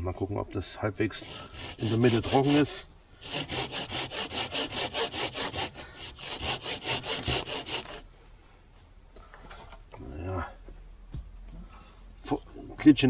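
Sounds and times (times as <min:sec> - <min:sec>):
hand saw cutting wood: 0:01.1 - 0:08.0.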